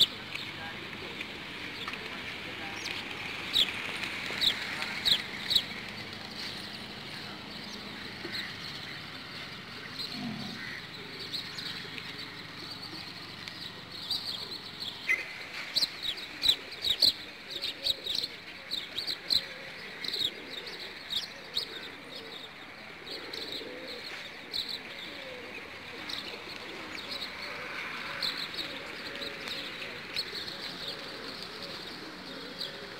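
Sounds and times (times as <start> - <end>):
wings flapping: 0.3 - 7.1
pigeons cooing: 2.8 - 32.9.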